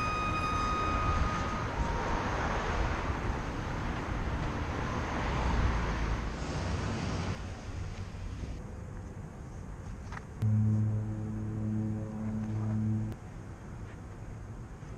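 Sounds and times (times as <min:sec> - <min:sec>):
road traffic rushing: 0:00.0 - 0:08.6, 0:10.4 - 0:13.2.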